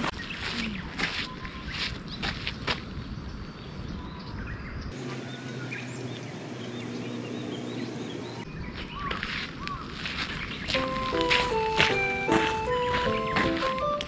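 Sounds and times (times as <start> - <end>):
small birds chirping: 0.0 - 11.8, 12.4 - 14.0
low steady hum: 5.0 - 8.4.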